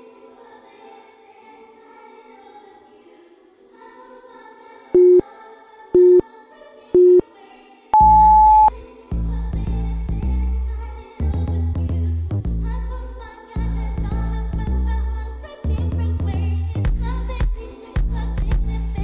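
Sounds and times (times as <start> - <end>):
soft choir-like music: 0.0 - 11.8, 12.7 - 15.8, 16.5 - 19.0
longer higher beep: 5.0 - 5.2, 6.0 - 6.2, 7.0 - 7.2, 8.0 - 8.7
short low beeps: 5.0 - 5.2, 6.0 - 6.2, 7.0 - 7.2, 8.0 - 8.7.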